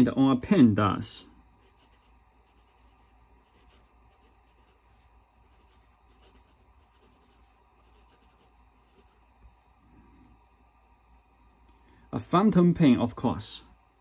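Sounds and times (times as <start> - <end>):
pen nib scratching on paper: 1.6 - 9.3.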